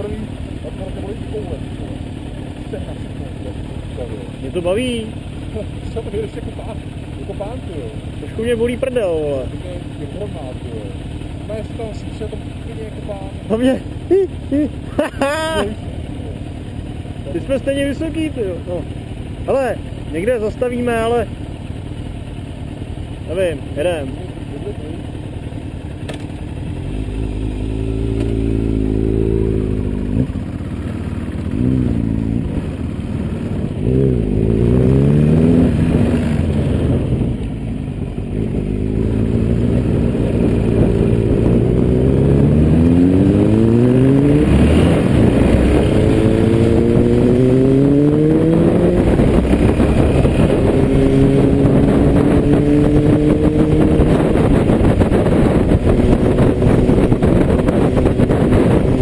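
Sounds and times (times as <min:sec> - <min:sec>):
motorcycle engine accelerating: 0:00.0 - 0:59.0
wind rushing: 0:38.6 - 0:59.0.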